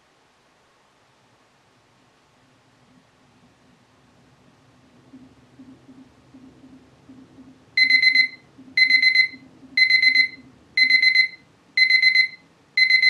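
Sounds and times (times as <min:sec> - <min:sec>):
kitchen timer alarm beeps: 0:07.8 - 0:13.0.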